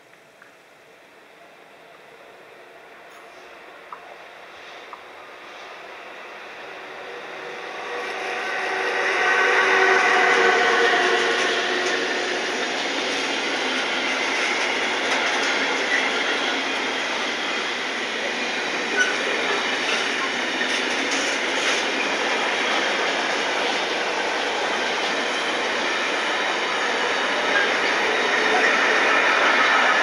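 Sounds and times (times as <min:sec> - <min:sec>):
freight train rolling past: 0:01.1 - 0:30.0
wheels clicking on track: 0:11.2 - 0:22.0.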